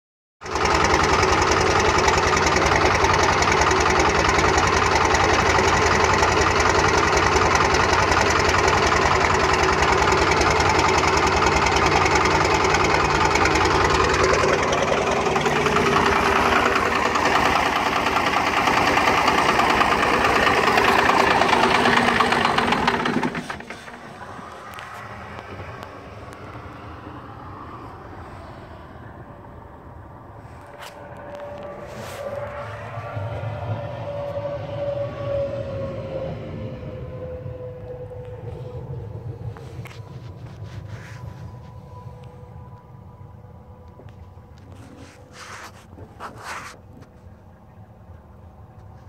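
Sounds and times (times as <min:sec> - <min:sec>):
diesel engine idling roughly: 0:00.4 - 0:26.0.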